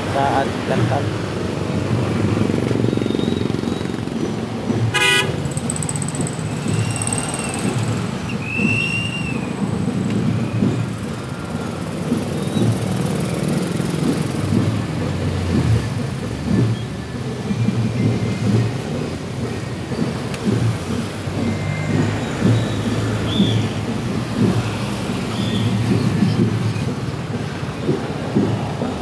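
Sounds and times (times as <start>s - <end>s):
traffic engine and road rumble: 0.0s - 29.0s
vehicle horn toot: 4.9s - 5.4s.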